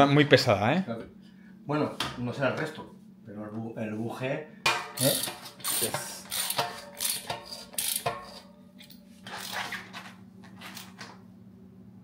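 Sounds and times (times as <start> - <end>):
steady low hum: 0.0 - 12.0
bike parts clicking and scraping: 4.7 - 11.2.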